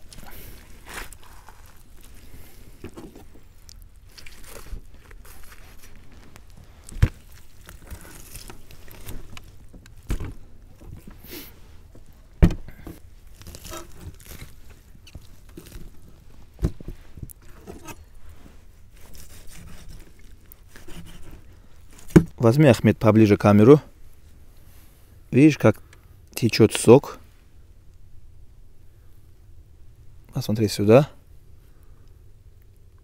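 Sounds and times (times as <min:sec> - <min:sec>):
faint scraping and rustling: 0:00.0 - 0:26.0.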